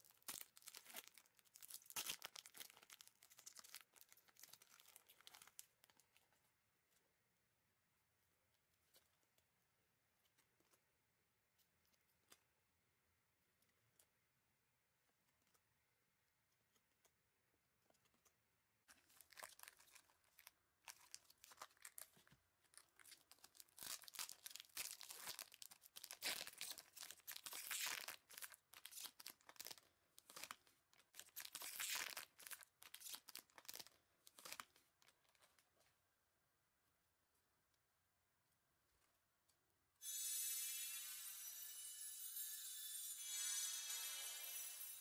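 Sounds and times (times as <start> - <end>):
plastic wrapper tearing and crinkling: 0.0 - 6.2, 18.9 - 35.4.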